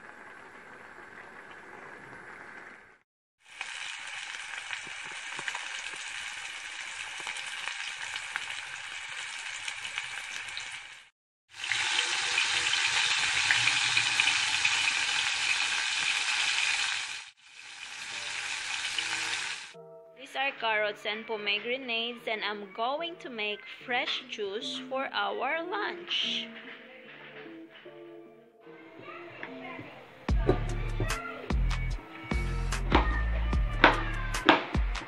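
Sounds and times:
food sizzling in hot oil: 0.0 - 19.8.

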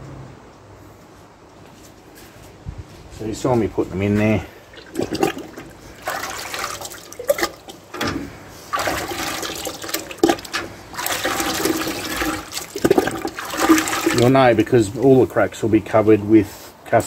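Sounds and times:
slurry sloshing in a metal bucket: 4.2 - 15.5.

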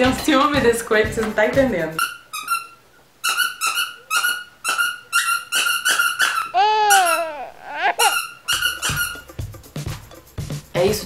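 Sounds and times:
squeaky toy squeaking: 2.0 - 9.3
puppy crying: 3.4 - 9.3.

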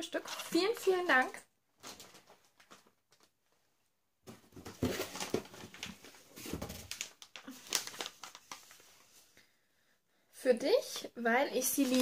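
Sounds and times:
wrapping paper crinkling: 1.8 - 3.3, 6.8 - 9.1, 11.6 - 12.0.

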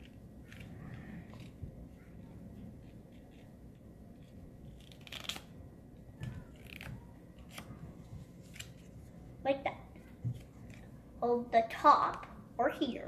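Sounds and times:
paper being folded and creased: 0.0 - 9.2, 10.0 - 11.0.

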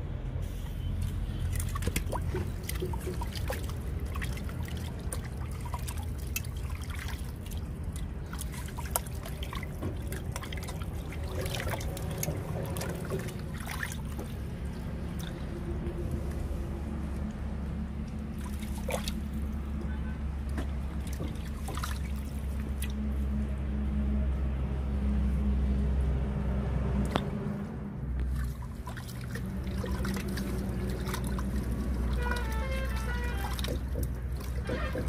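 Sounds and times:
water trickling and pouring: 1.0 - 16.2, 18.0 - 19.7, 20.5 - 23.1, 28.2 - 35.0.

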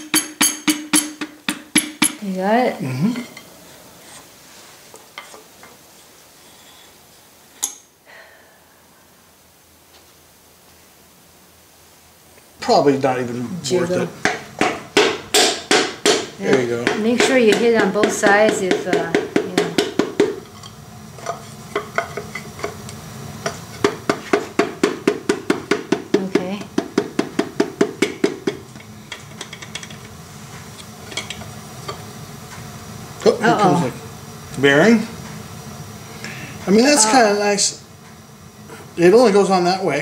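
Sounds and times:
hammer handle tapping metal: 0.0 - 2.2.

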